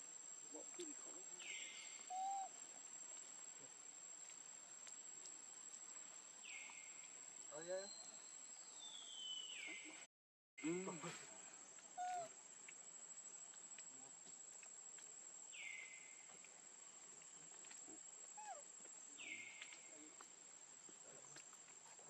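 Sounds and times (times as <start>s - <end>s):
falling bird calls: 0.8s - 2.6s, 6.4s - 12.4s.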